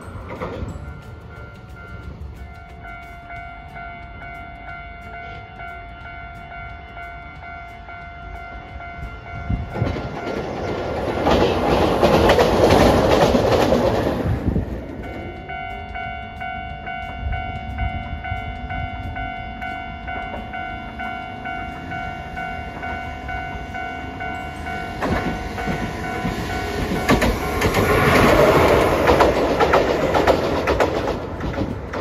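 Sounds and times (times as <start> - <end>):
level-crossing warning bell ringing: 0.0 - 32.0
tram wheels clattering: 0.0 - 32.0.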